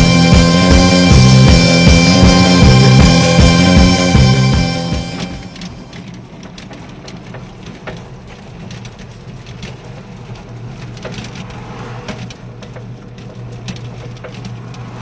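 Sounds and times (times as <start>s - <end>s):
vehicle low hum: 0.0s - 15.0s
raindrops ticking on truck roof: 5.6s - 15.0s.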